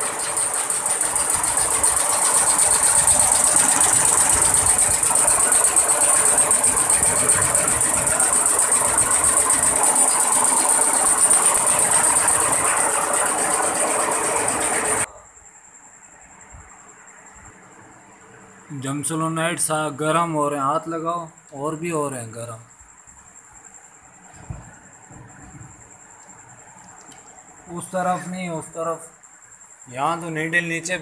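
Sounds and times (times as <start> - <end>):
embroidery machine clattering: 0.0 - 15.1.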